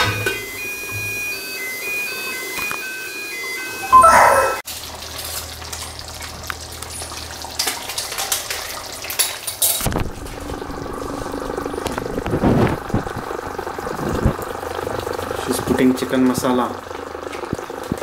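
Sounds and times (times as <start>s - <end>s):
curry bubbling: 9.9s - 18.0s.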